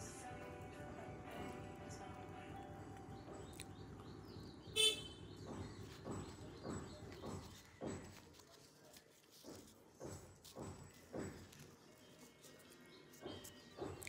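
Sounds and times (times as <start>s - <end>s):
close chewing: 2.9s - 4.2s.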